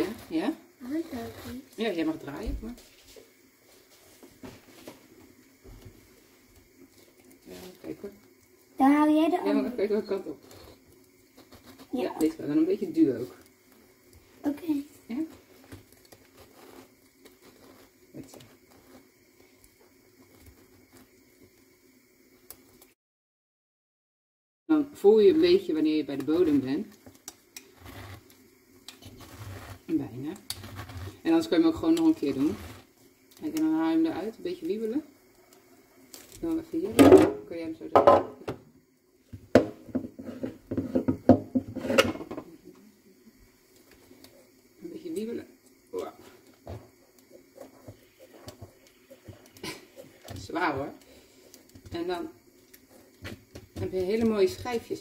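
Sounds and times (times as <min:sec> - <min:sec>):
pineapple corer crunching and scraping: 0:28.9 - 0:31.2.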